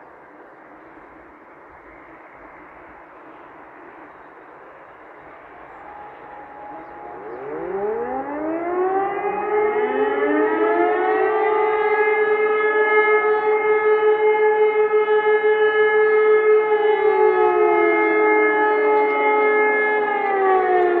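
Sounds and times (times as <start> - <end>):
siren wailing: 4.7 - 21.0.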